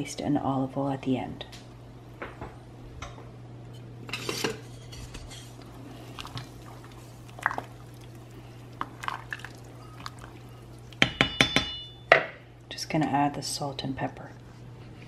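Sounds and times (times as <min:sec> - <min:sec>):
metal spoon clinking in pot: 0:11.0 - 0:12.1.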